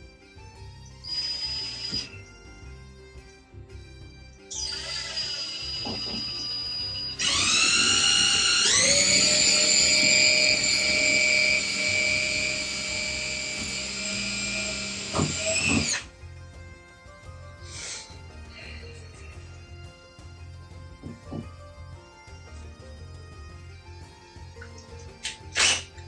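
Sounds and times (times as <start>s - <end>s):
cordless drill motor whine: 1.0s - 2.3s, 4.5s - 16.1s
knocks: 21.0s - 21.6s.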